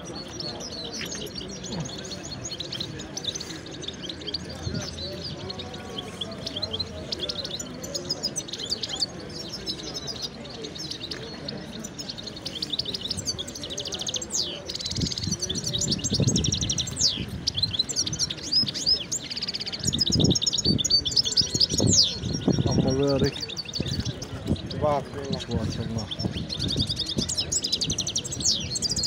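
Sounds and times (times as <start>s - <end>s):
songbirds chirping and singing: 0.0s - 29.0s.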